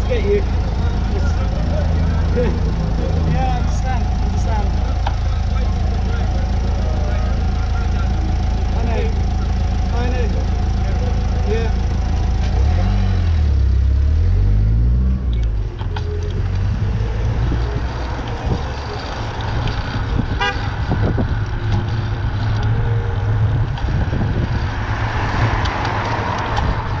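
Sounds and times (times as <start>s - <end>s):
car horn toot: 0.0s - 12.7s, 20.2s - 21.0s
low rumble of traffic: 0.0s - 27.0s
vehicle engine revving: 0.0s - 27.0s
wind on microphone: 19.5s - 22.3s, 23.3s - 27.0s.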